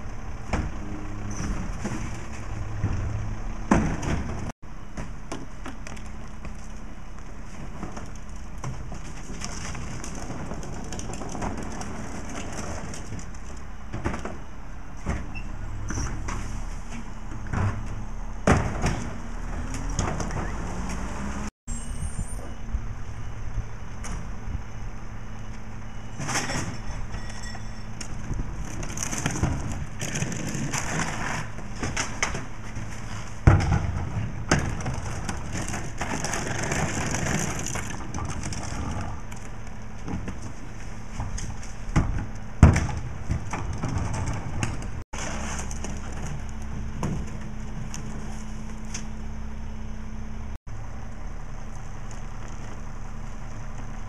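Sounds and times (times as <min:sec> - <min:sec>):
trash carts clunking: 0:00.0 - 0:21.5, 0:22.4 - 0:54.0
diesel truck engine running: 0:27.9 - 0:54.0.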